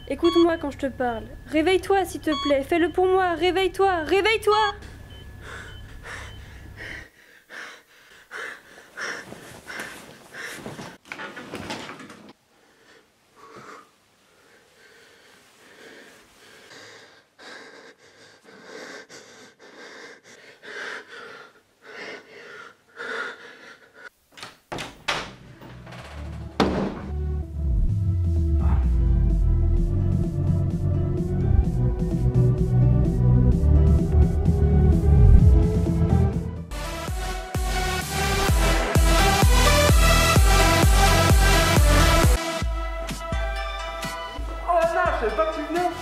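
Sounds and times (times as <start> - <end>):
man wheezing breaths: 4.8 - 11.0, 12.6 - 24.2, 28.5 - 29.2.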